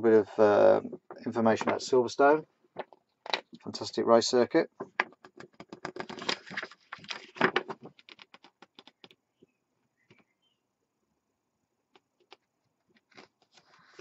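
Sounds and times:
magazine pages rustling: 5.7 - 9.0.

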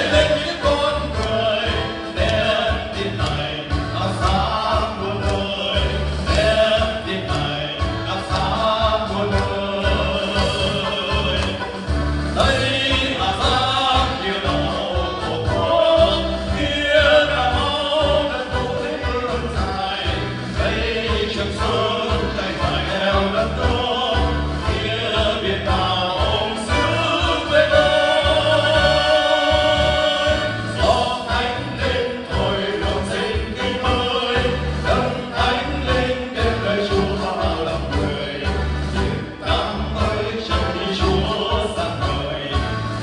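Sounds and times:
men singing through microphones: 0.0 - 43.0.

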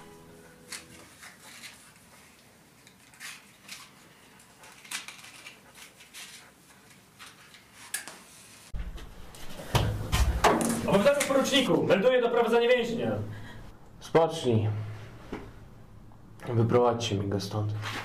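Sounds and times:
low steady hum: 12.5 - 18.0.

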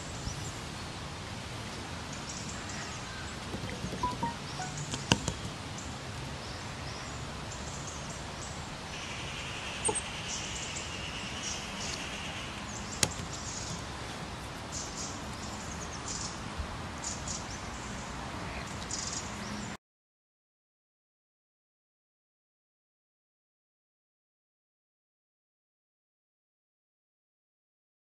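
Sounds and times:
steady background hiss: 0.0 - 19.8
long high-pitched note: 4.0 - 4.9
short high chirps: 4.0 - 4.9.

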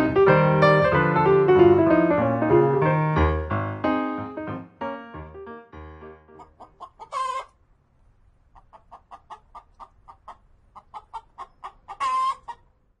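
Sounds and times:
hen clucking: 6.3 - 7.6, 8.4 - 12.8
hen squawking: 6.4 - 7.5, 8.6 - 12.6.

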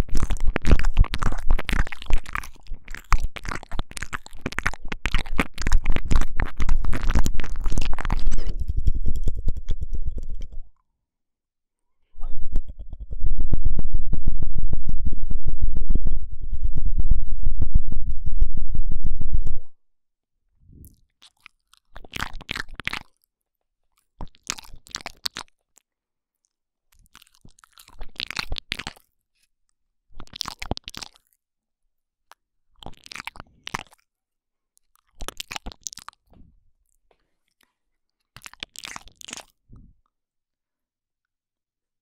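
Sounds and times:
wet crackling mouth clicks: 0.0 - 10.8, 20.9 - 23.2, 24.2 - 25.8, 26.9 - 29.1, 30.2 - 31.3, 32.3 - 34.1, 34.8 - 36.3, 38.3 - 39.6.

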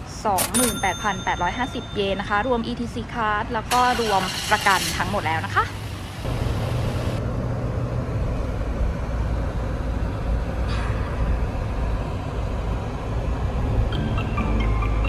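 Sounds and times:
car road and engine noise: 0.0 - 15.0.

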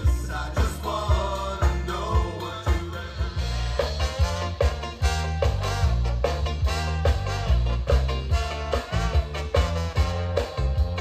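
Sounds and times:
drums: 0.0 - 11.0
guitar: 0.0 - 11.0
upright double bass walking: 0.0 - 11.0
brass lines: 3.4 - 11.0.

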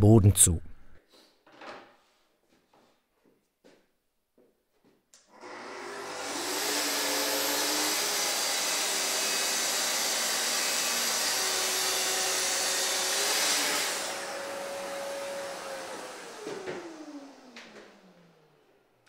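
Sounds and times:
track saw cutting wood: 5.3 - 18.6
dust extractor running: 5.4 - 18.6.

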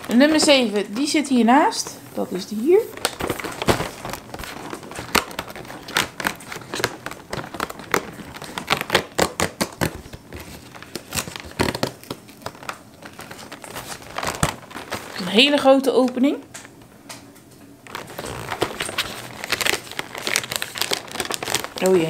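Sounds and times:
packaging crinkling: 0.0 - 22.0
cardboard tearing: 2.8 - 15.4, 17.9 - 22.0.

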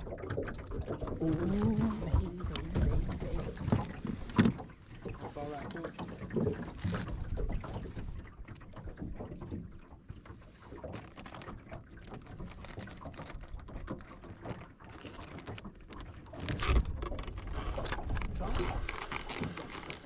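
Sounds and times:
wind rumbling on microphone: 0.0 - 9.4, 16.4 - 20.0
water slapping against boat hull: 0.0 - 20.0
clicks and knocks of fishing rod: 0.3 - 20.0.

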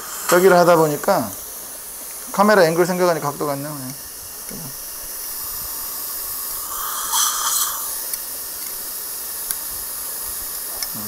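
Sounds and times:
dental suction hissing: 0.0 - 11.0
suction slurp: 4.5 - 8.2.

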